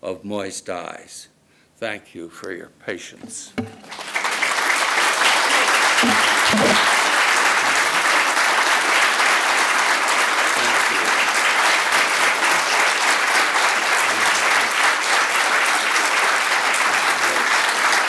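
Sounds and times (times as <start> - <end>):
audience applauding: 3.8 - 18.0.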